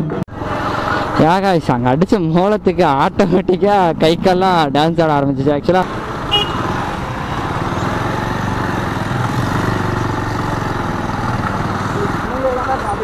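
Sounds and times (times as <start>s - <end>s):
road and wind noise: 0.0s - 13.0s
motorcycle engine running: 5.8s - 13.0s.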